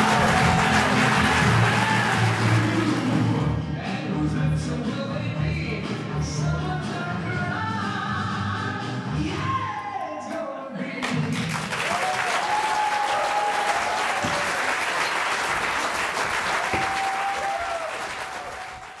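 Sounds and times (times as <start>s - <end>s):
audience applauding: 0.0s - 3.4s, 11.0s - 19.0s
music playing: 0.0s - 10.3s.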